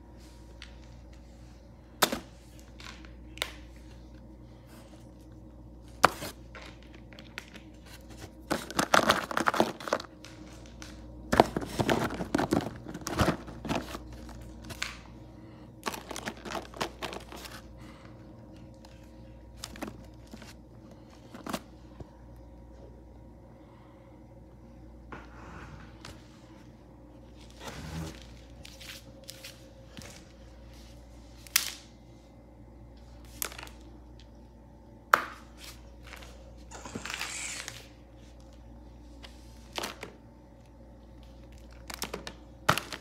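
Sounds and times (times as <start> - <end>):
plastic toys clattering: 15.8 - 17.5.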